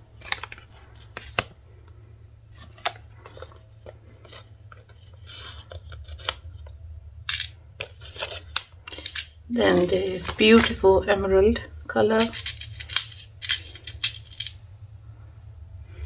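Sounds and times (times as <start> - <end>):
plastic pouch crinkling: 0.0 - 1.6, 2.5 - 6.8, 7.8 - 10.8
steady low hum: 0.0 - 16.0.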